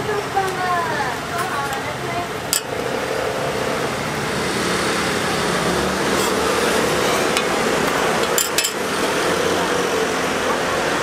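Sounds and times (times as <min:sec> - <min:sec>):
metal tongs clacking on steel plate: 0:02.5 - 0:02.7, 0:08.2 - 0:08.8.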